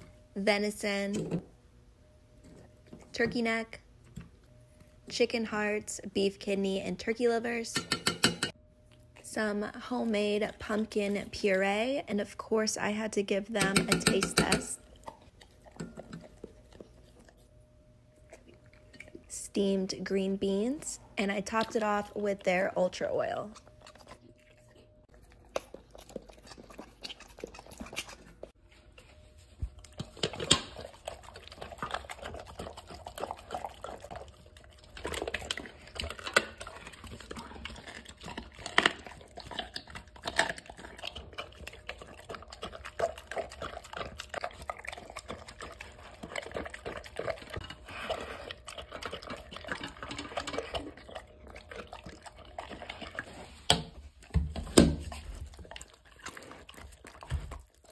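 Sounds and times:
dog chewing and lapping: 10.2 - 57.9.

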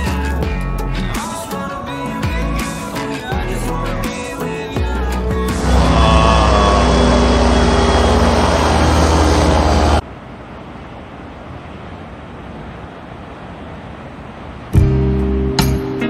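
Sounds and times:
helicopter engine whine: 5.6 - 10.0
helicopter rotor chop: 5.6 - 10.0
steady background noise: 5.6 - 15.5.

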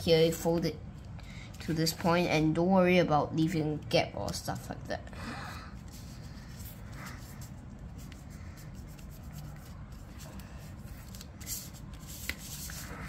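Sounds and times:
low room noise: 0.0 - 13.0
paper rustling as it is folded: 5.8 - 13.0.

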